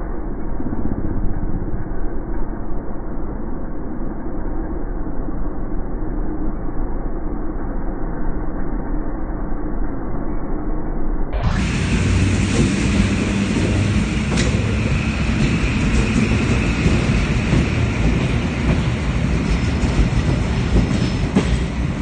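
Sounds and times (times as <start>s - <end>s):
train wheels rumbling: 11.4s - 22.0s.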